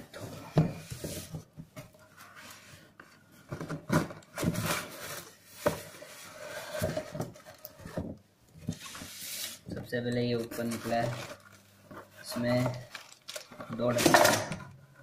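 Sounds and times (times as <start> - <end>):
cardboard box rustling and scraping: 3.4 - 8.1.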